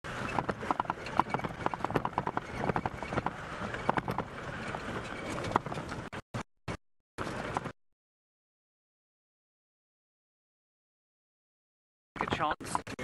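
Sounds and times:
engine rumble: 0:00.0 - 0:06.2, 0:07.2 - 0:07.7
vehicle body rattling and knocking: 0:00.1 - 0:06.2.

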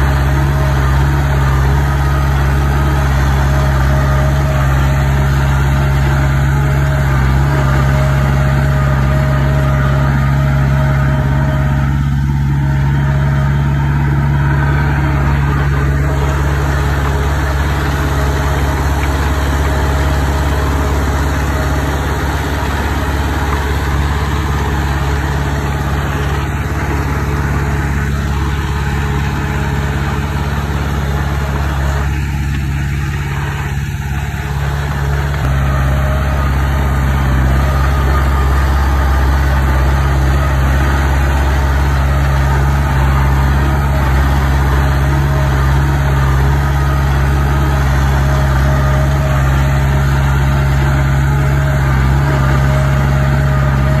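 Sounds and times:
bulldozer diesel engine running: 0:00.0 - 0:54.0.

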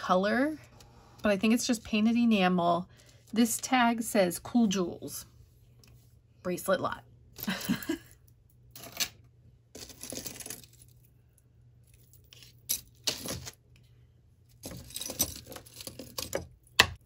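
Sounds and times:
metal chain jewelry jangling: 0:14.6 - 0:16.2.

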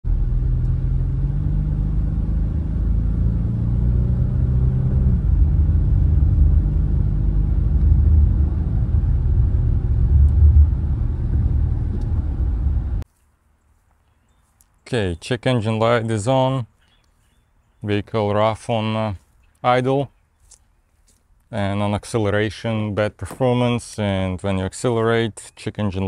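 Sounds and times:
road noise: 0:00.0 - 0:13.1
car engine heard from cabin: 0:00.1 - 0:13.0.

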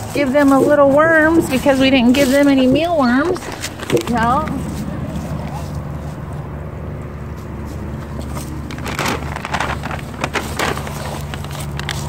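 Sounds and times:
plastic bag crinkling: 0:00.0 - 0:06.2, 0:07.7 - 0:12.0
low rumble: 0:00.6 - 0:07.4.

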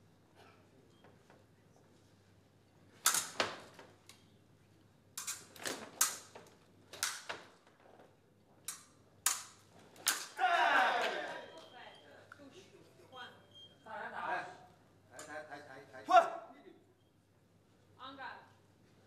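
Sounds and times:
fencing sabres clashing: 0:03.0 - 0:04.3, 0:05.2 - 0:07.8, 0:08.6 - 0:11.7.

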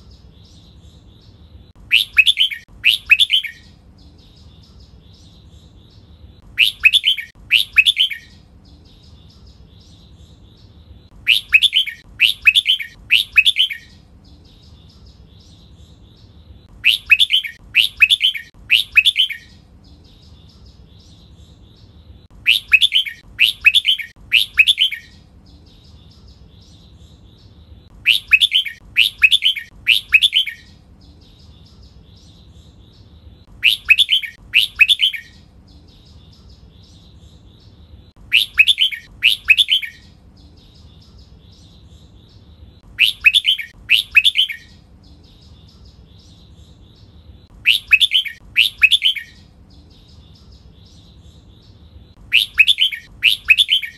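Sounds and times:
soft bird twittering: 0:00.0 - 0:53.9
bird whistled song phrases: 0:01.9 - 0:03.7, 0:06.5 - 0:08.4, 0:11.2 - 0:14.0, 0:16.8 - 0:19.6, 0:22.4 - 0:25.2, 0:28.0 - 0:30.8, 0:33.6 - 0:35.5, 0:38.2 - 0:40.2, 0:43.0 - 0:44.8, 0:47.6 - 0:49.5, 0:52.3 - 0:53.9.

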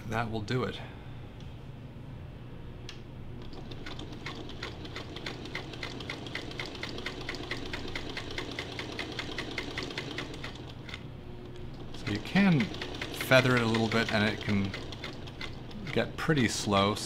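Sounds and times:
sewing machine motor hum: 0:03.3 - 0:17.0
sewing needle ticking: 0:03.4 - 0:11.0, 0:11.6 - 0:16.0.

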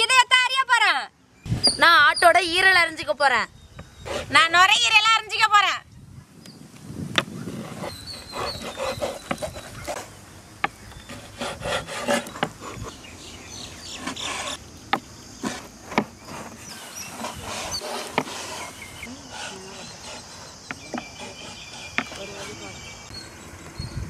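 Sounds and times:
knives cutting and scraping: 0:07.5 - 0:10.1, 0:11.0 - 0:13.0, 0:13.8 - 0:14.6, 0:15.4 - 0:22.6.

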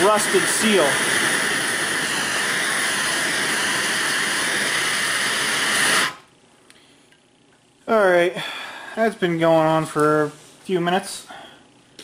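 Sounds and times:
gas torch hissing: 0:00.0 - 0:06.3.

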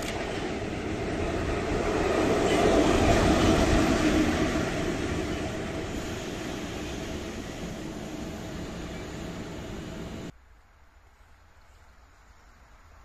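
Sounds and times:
electric locomotive passing: 0:00.0 - 0:10.3.

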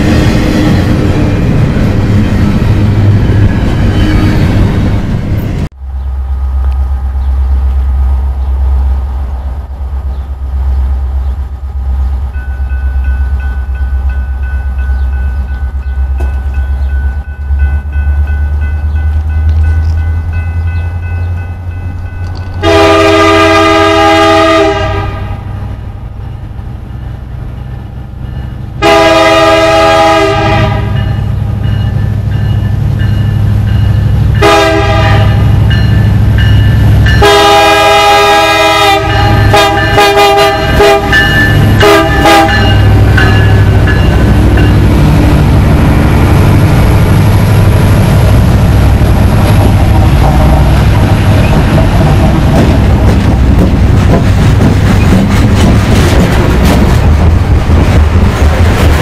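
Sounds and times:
diesel locomotive rumbling: 0:00.0 - 0:59.0
locomotive air horn blasts: 0:22.6 - 0:25.6, 0:28.8 - 0:31.1, 0:34.4 - 0:35.6, 0:37.2 - 0:43.7.

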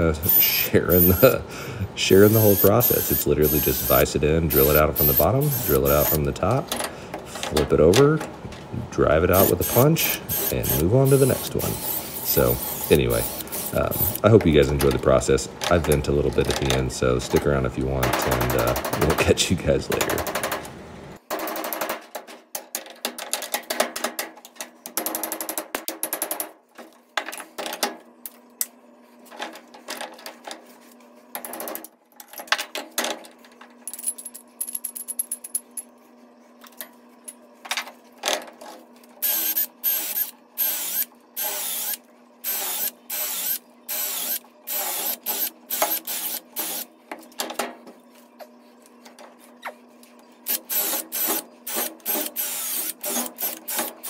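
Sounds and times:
steady low hum: 0:00.0 - 0:21.2
power drill: 0:02.2 - 0:04.0, 0:04.6 - 0:06.2, 0:09.4 - 0:14.2, 0:39.2 - 0:46.9, 0:50.5 - 0:54.0.

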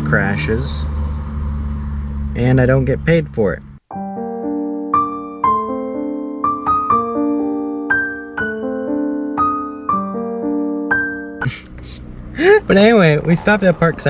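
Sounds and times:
gentle piano music: 0:03.9 - 0:11.6.

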